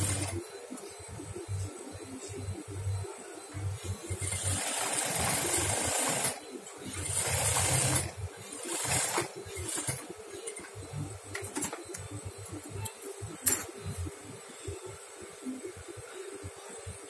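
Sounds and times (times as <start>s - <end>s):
sewing machine stitching: 4.2s - 6.4s, 7.0s - 10.0s.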